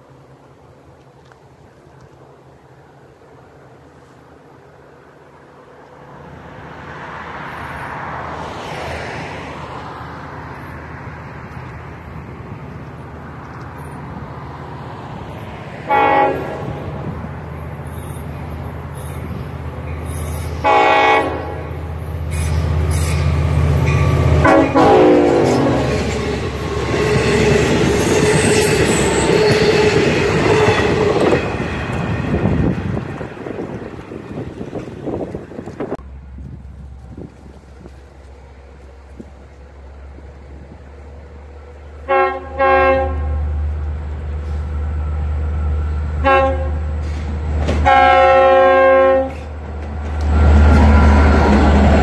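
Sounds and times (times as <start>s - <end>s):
low train rumble: 0.0s - 52.0s
train wheels on rails: 0.0s - 52.0s
train horn blasts: 15.8s - 17.0s, 20.5s - 23.2s, 24.0s - 26.0s, 42.0s - 43.6s, 46.2s - 47.0s, 47.8s - 49.6s.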